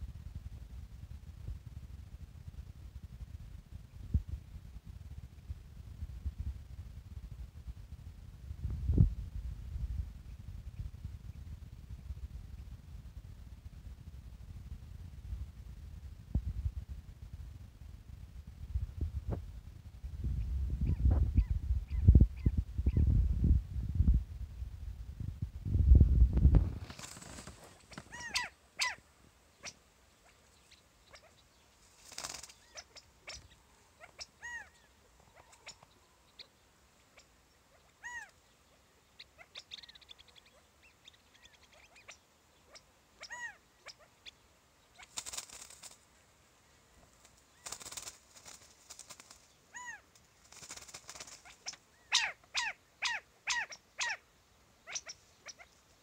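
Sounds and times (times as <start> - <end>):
rustling: 26.4 - 29.4
quail calling: 27.8 - 29.0, 29.6 - 31.4, 32.0 - 45.2, 49.7 - 55.8.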